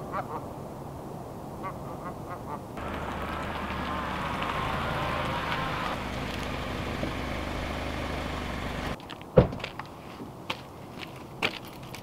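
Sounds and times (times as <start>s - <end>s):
suv engine and tyres rolling: 2.8s - 12.0s
sharp thump: 9.4s - 9.7s.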